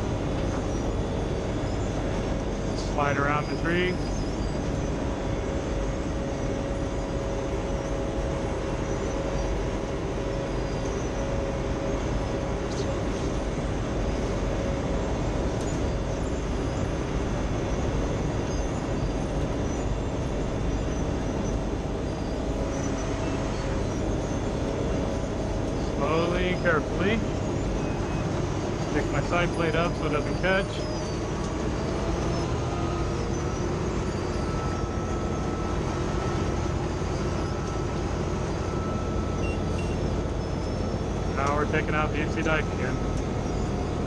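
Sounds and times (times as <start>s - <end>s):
milling machine drone: 0.0s - 44.0s.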